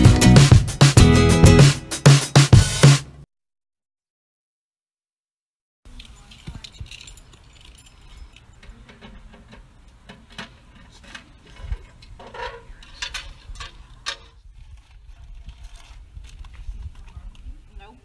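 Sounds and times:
wind rumble on microphone: 0:11.5 - 0:18.0.

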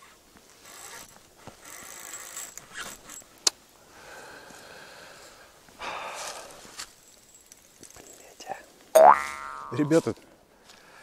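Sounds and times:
fishing reel rustling and clicking: 0:00.5 - 0:03.3, 0:06.7 - 0:08.4.

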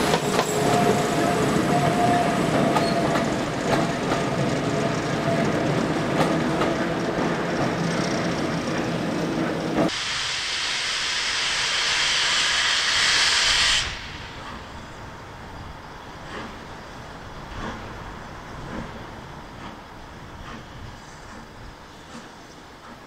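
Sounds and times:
loud hiss of escaping steam: 0:09.9 - 0:23.0.

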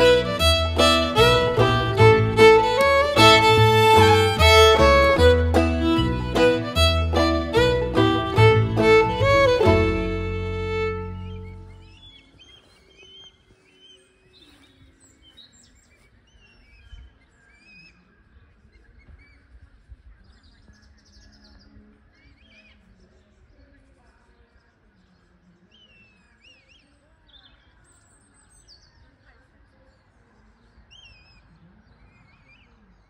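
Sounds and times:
music note: 0:00.0 - 0:11.8
birds chirping and whistling: 0:11.2 - 0:15.6.

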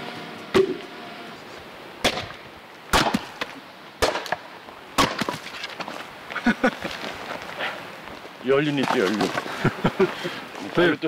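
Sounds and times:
axe splitting logs: 0:02.0 - 0:04.4, 0:05.0 - 0:05.9.

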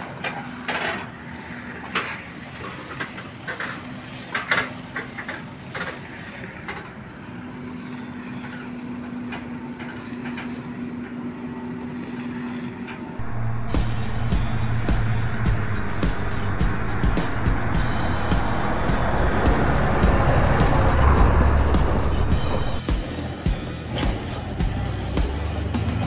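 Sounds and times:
tractor engine running: 0:13.2 - 0:22.9
trailer clanking and rattling: 0:13.2 - 0:22.9
loud music: 0:13.2 - 0:23.2.

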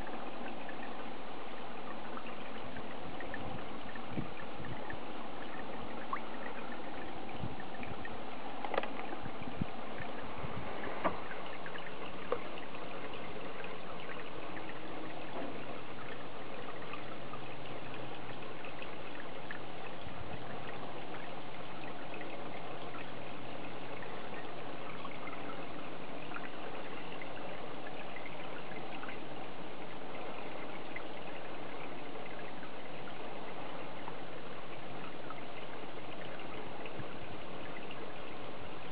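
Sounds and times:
water trickling into pond: 0:00.0 - 0:38.9.

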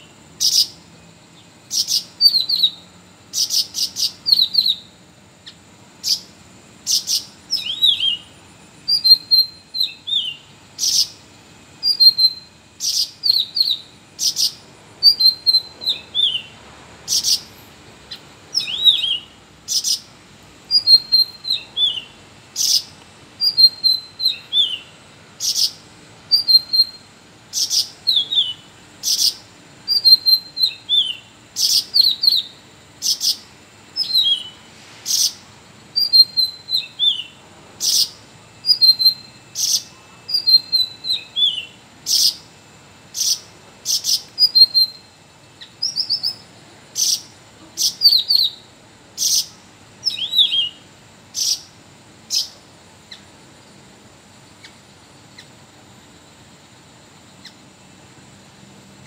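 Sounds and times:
bird singing whistled phrases: 0:01.7 - 0:05.0, 0:06.9 - 0:11.2, 0:11.8 - 0:17.6, 0:18.5 - 0:20.1, 0:20.7 - 0:33.4, 0:34.0 - 0:42.4, 0:43.2 - 0:50.8.

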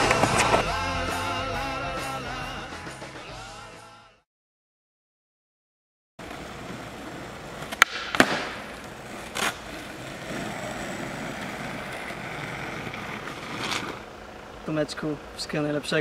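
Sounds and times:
skateboard wheels rolling on asphalt: 0:06.2 - 0:14.6
skateboard clack on landing: 0:07.6 - 0:09.6
skateboard tail pop: 0:07.6 - 0:09.6.

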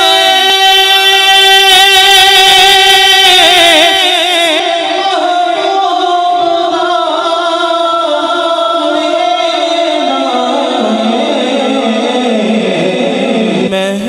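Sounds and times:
man singing with vibrato: 0:00.0 - 0:14.0.

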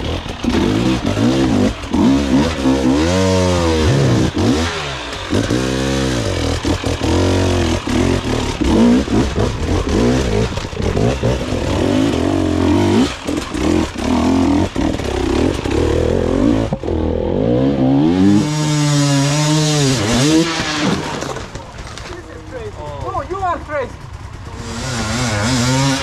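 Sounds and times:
dirt bike engines revving: 0:00.0 - 0:26.0
bikes knocking on rock: 0:20.5 - 0:22.4.

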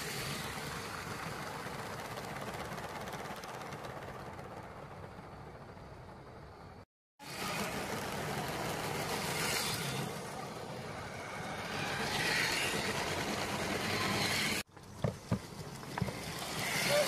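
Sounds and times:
toy train running on track: 0:00.0 - 0:04.6, 0:07.2 - 0:14.6, 0:15.5 - 0:17.0.

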